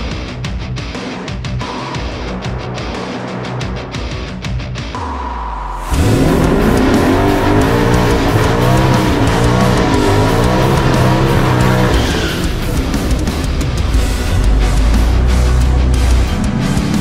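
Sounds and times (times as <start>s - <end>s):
rock music: 0.0s - 17.0s
car engine revving in burnout: 5.0s - 17.0s.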